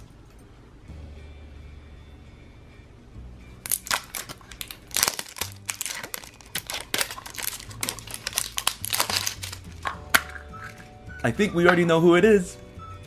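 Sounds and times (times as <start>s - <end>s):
plastic wrap crinkling: 3.6s - 10.9s.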